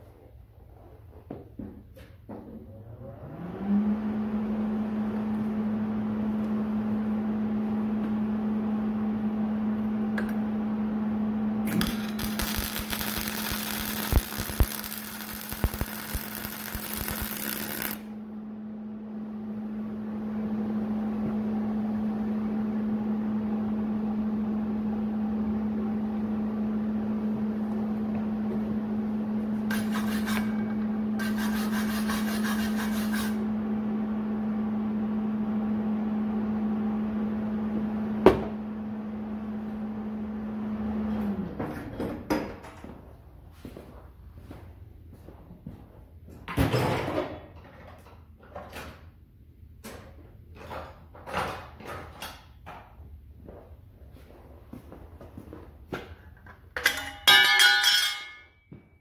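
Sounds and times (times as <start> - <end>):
welder cooling fan humming: 3.2 - 41.8
welding crackle with pops: 11.7 - 18.1.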